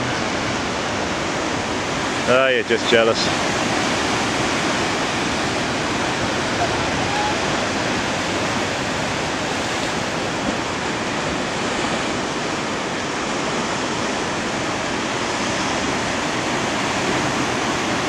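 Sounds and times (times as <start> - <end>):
surf washing against rocks: 0.0 - 18.0.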